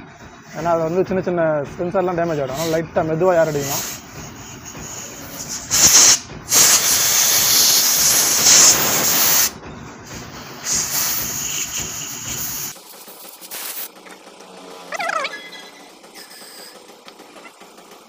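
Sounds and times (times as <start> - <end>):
compressed air gun hissing: 2.2 - 14.1, 16.2 - 16.9.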